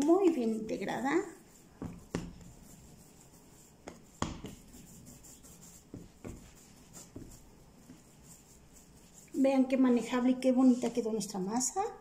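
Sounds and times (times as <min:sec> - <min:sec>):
hands rubbing dough: 0:00.0 - 0:12.0
dough thumping on countertop: 0:01.7 - 0:02.6, 0:03.8 - 0:04.8, 0:05.8 - 0:07.5.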